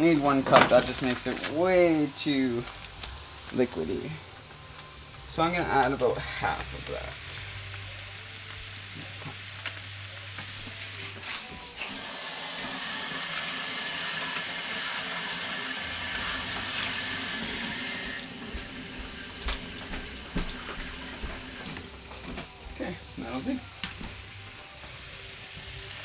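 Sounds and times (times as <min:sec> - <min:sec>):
faucet water running into sink: 0:11.8 - 0:21.8.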